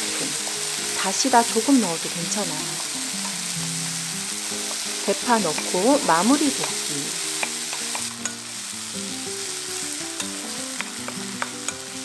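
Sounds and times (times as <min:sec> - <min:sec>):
vegetables sizzling in oil: 0:00.0 - 0:12.0
spatula tapping and scraping pan: 0:05.5 - 0:05.8, 0:06.5 - 0:08.4, 0:10.2 - 0:11.9.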